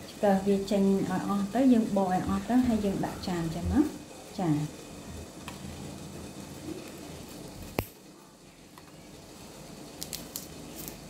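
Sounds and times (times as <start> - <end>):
lychee skin cracking: 10.0 - 11.0.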